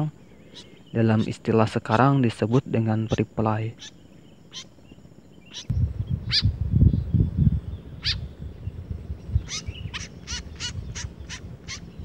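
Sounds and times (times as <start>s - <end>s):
short sharp bird calls: 0.2s - 1.0s, 3.8s - 4.8s, 5.4s - 6.5s
low rumble: 5.7s - 12.0s.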